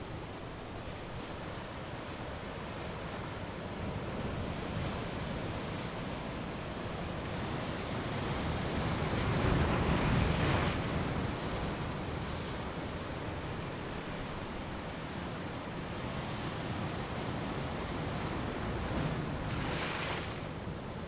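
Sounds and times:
surf on rocky shore: 0:00.0 - 0:21.0.

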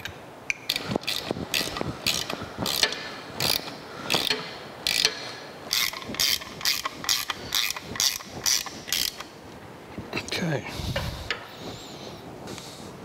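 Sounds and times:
hand ratchet clicking: 0:00.0 - 0:09.4.

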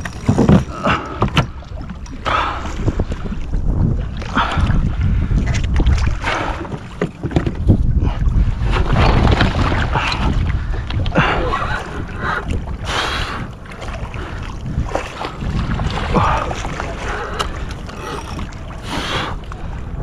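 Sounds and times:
water splashing around a kayak: 0:00.0 - 0:20.0
wind buffeting microphone: 0:00.0 - 0:20.0.

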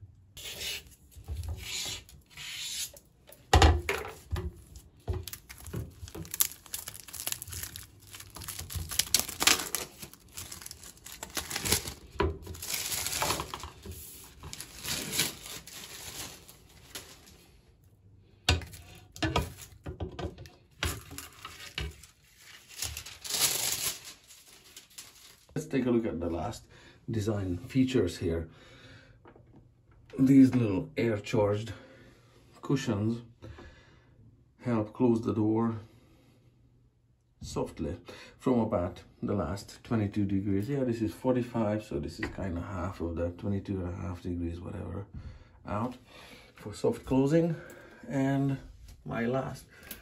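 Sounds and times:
plastic film rustling and tearing: 0:04.2 - 0:17.6, 0:18.7 - 0:19.8, 0:20.8 - 0:25.6.

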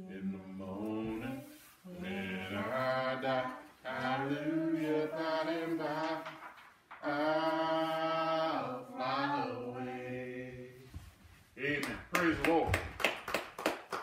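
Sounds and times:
woman singing unaccompanied: 0:01.0 - 0:06.4.

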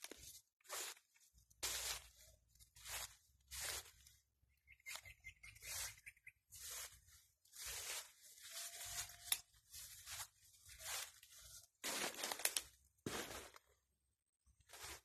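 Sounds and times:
footsteps through grass: 0:00.0 - 0:13.8, 0:14.6 - 0:15.0.

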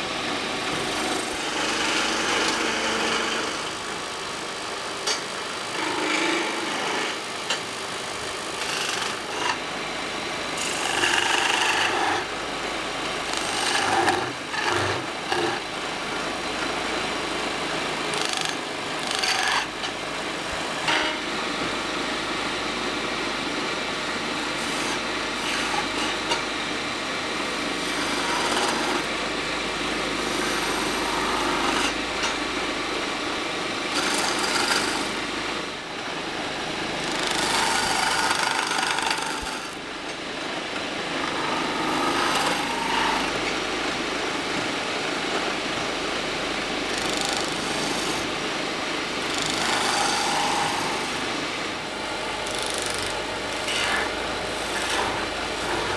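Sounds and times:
chisel scraping spinning wood: 0:00.7 - 0:04.1, 0:05.0 - 0:07.7, 0:08.5 - 0:09.6, 0:10.6 - 0:12.4, 0:13.2 - 0:16.7, 0:18.0 - 0:19.9, 0:24.6 - 0:26.5, 0:27.6 - 0:29.1, 0:30.2 - 0:32.4, 0:33.9 - 0:35.3, 0:37.0 - 0:39.8, 0:41.2 - 0:43.6, 0:46.8 - 0:48.4, 0:49.2 - 0:51.4, 0:52.3 - 0:55.9.

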